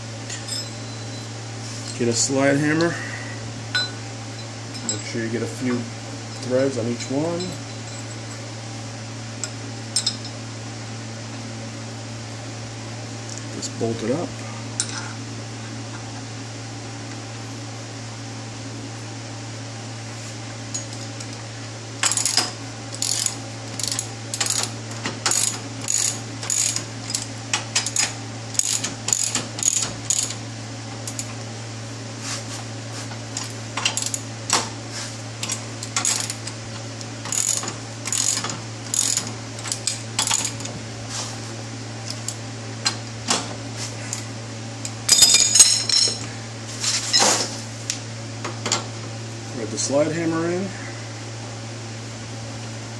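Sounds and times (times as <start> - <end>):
steady low hum: 0.0 - 52.9
hand ratchet clicking: 23.0 - 30.4, 37.3 - 40.7.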